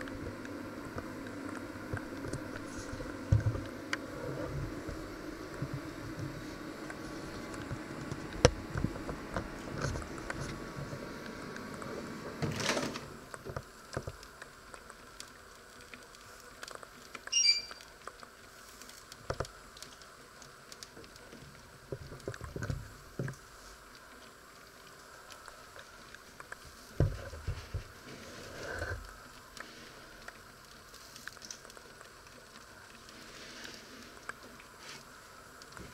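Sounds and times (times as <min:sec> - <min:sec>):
oven door opening: 0:12.4 - 0:13.1
short high chirp: 0:17.3 - 0:17.8.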